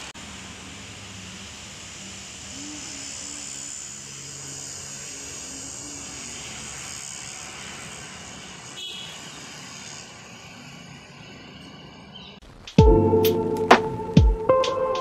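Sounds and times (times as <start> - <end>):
high hiss: 0.0 - 11.6
traffic drone: 0.0 - 15.0.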